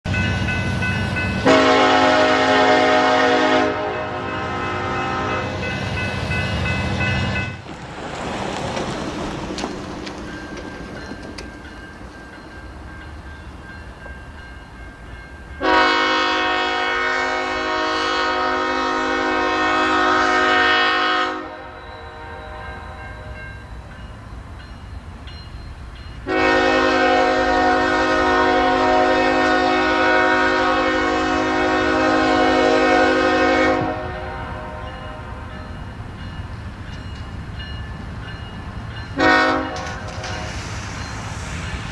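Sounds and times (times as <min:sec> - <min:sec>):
locomotive air horn blasts: 0:01.4 - 0:05.6, 0:15.6 - 0:23.4, 0:26.2 - 0:35.4, 0:39.2 - 0:40.5.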